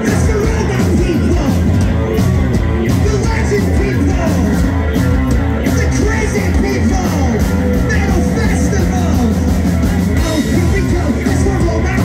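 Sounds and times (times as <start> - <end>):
man singing into microphone: 0.0 - 1.7, 2.9 - 4.6, 5.7 - 9.4, 10.2 - 12.0
electric bass: 0.0 - 12.0
steady drumbeat: 0.0 - 12.0.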